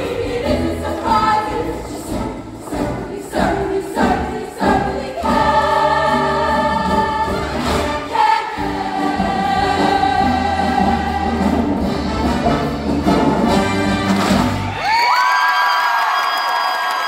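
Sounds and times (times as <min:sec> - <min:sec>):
women's choir singing in harmony: 0:00.0 - 0:12.6.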